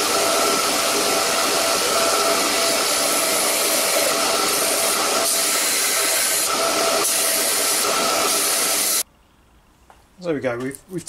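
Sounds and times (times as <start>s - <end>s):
belt sander grinding metal: 0.0s - 9.0s.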